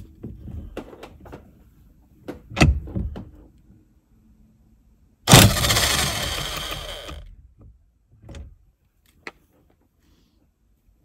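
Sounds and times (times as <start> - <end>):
electric impact wrench hammering: 5.3 - 7.2.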